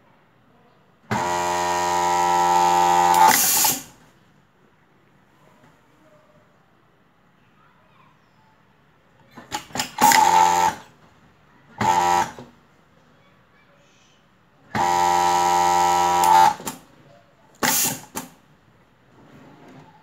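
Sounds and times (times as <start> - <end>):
sewing machine whirring: 1.1 - 4.0, 9.4 - 11.0, 11.8 - 12.5, 14.7 - 16.9, 17.6 - 18.4.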